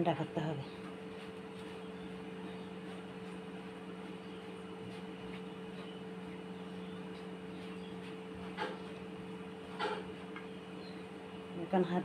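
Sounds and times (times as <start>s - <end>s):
appliance mechanical hum: 0.0s - 12.0s.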